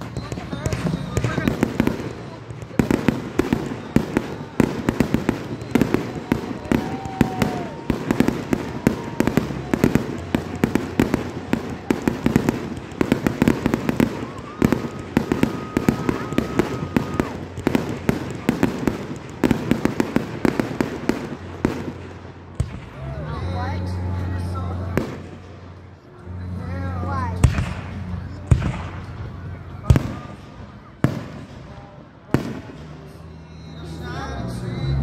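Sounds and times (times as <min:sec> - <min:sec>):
faint firework whistle: 0:00.0 - 0:02.4, 0:03.5 - 0:10.6, 0:13.4 - 0:17.4
fireworks bangs and crackles: 0:00.0 - 0:35.0.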